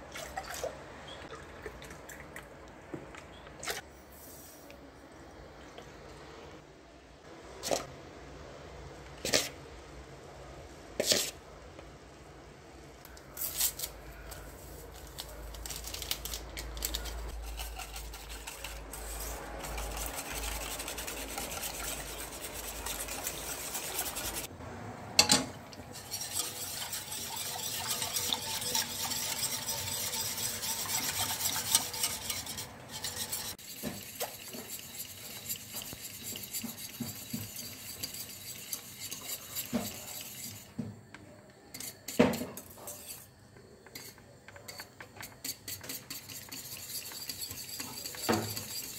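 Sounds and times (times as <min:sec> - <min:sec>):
whisk scraping a metal pot: 0:14.2 - 0:24.5, 0:25.9 - 0:40.8, 0:41.7 - 0:43.3, 0:43.9 - 0:48.9.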